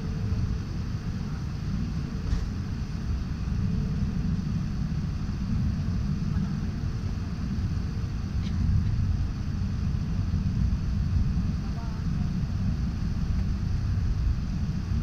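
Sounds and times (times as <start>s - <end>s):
airliner cabin rumble: 0.0s - 15.0s
faint steady hum: 0.0s - 15.0s.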